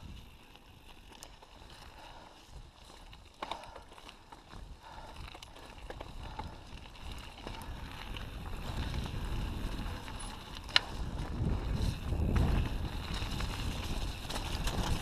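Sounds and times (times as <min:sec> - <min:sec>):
bike rattles and clicks: 0:00.0 - 0:15.0
wind buffeting microphone: 0:04.5 - 0:15.0
tyre rumble on dirt: 0:08.2 - 0:15.0.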